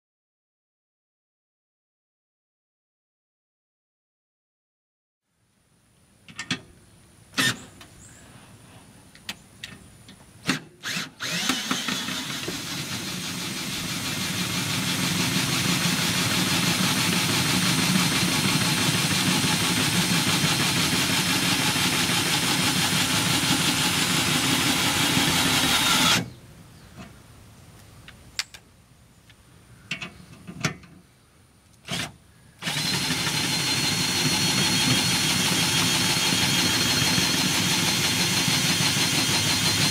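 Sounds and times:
drill clicks: 0:10.5 - 0:13.6, 0:15.9 - 0:26.3, 0:31.7 - 0:39.9
cordless drill running: 0:10.8 - 0:26.3, 0:32.6 - 0:39.9.

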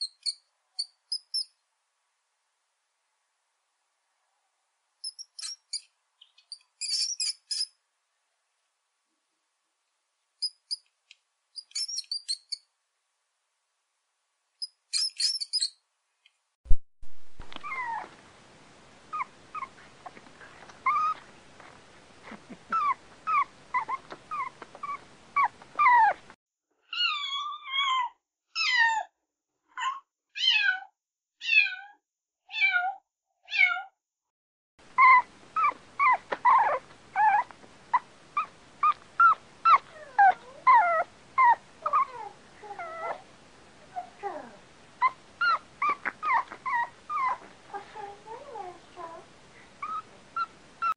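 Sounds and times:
short squeaky animal calls: 0:00.0 - 0:01.5, 0:05.0 - 0:07.7, 0:11.6 - 0:12.6, 0:14.6 - 0:15.8
dogs yipping: 0:06.5 - 0:07.7, 0:11.6 - 0:12.6, 0:15.0 - 0:15.7, 0:17.6 - 0:18.1, 0:20.8 - 0:21.3, 0:22.2 - 0:26.3, 0:35.0 - 0:43.3, 0:45.0 - 0:47.5, 0:49.8 - 0:50.9.

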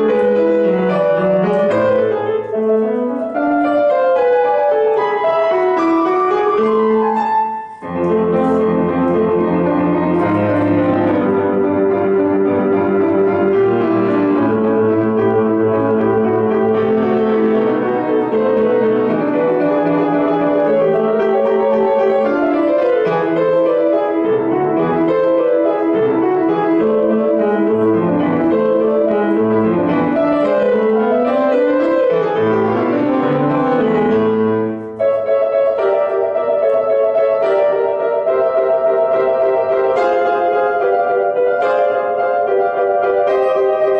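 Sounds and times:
solo grand piano: 0:00.0 - 0:43.9.

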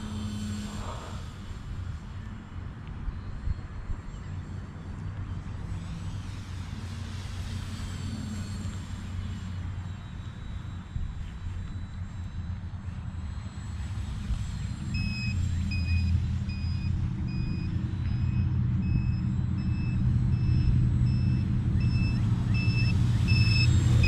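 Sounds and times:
high electronic beep: 0:14.8 - 0:24.0.

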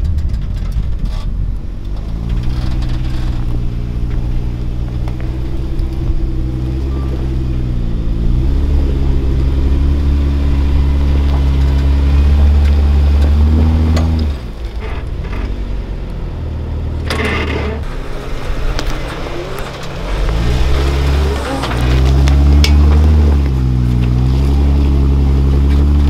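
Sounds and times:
car engine pulling under load: 0:00.0 - 0:26.0.

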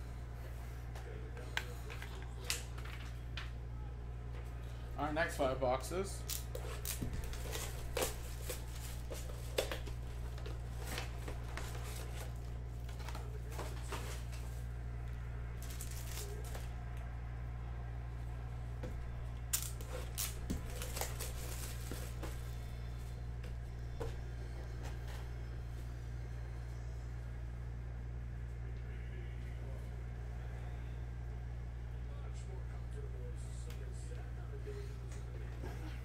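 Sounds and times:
low hum: 0:00.0 - 0:36.0
foil packs crinkling: 0:06.3 - 0:14.6, 0:15.6 - 0:16.7, 0:19.5 - 0:22.6.

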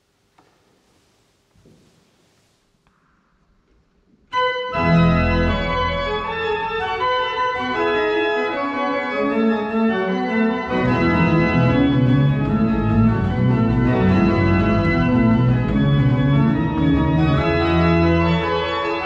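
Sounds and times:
pipe organ chords: 0:04.3 - 0:19.0
deep organ pedal bass: 0:04.4 - 0:19.0.

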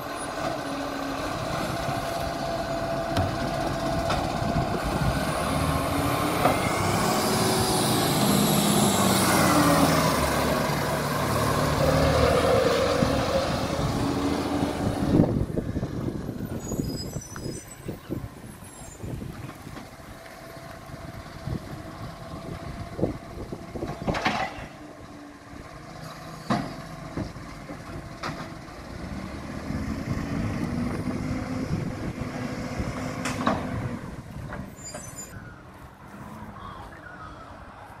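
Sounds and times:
garbage truck engine hum: 0:00.0 - 0:37.2
sharp knocks and clanks: 0:03.1 - 0:04.3.

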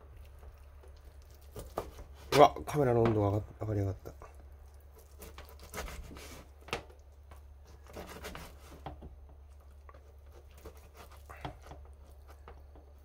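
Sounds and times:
knife slicing meat: 0:05.0 - 0:06.5, 0:07.7 - 0:08.8, 0:10.0 - 0:12.4.

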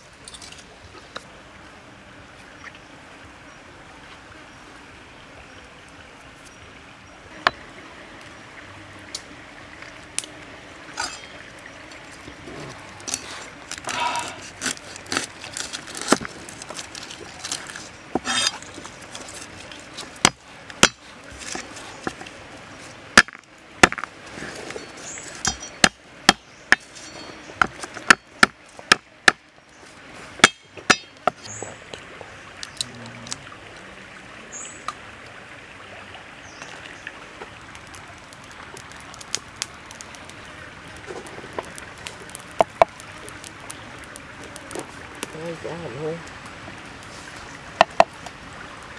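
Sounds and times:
stream flowing: 0:00.0 - 0:48.9
cleaver knocking on wooden board: 0:47.8 - 0:48.1.

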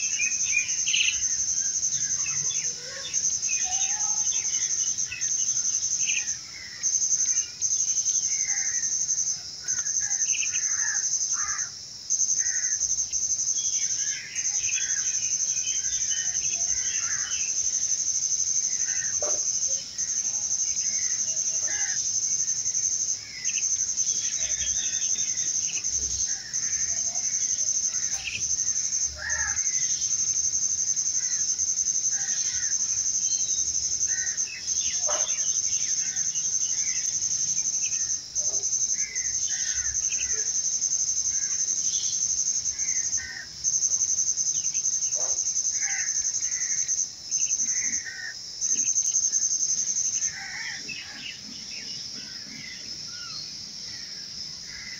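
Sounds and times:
high insect trill: 0:00.0 - 0:54.9.

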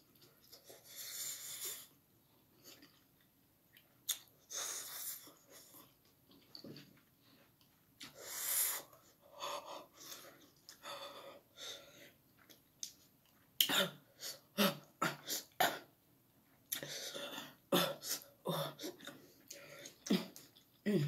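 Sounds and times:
person breathing hard: 0:08.1 - 0:12.2.

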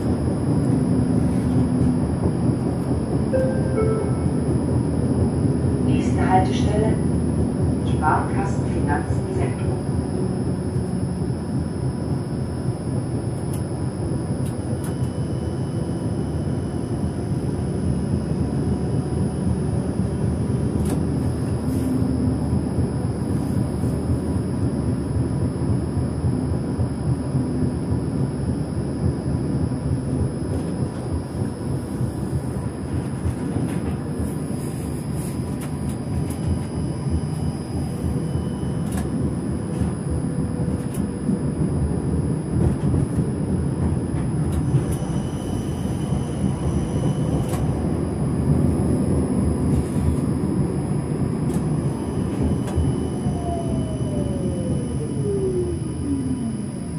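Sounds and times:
tram wheels rumbling on rails: 0:00.0 - 0:56.9
faint high whine: 0:03.2 - 0:05.3, 0:34.2 - 0:42.4, 0:44.5 - 0:56.9.

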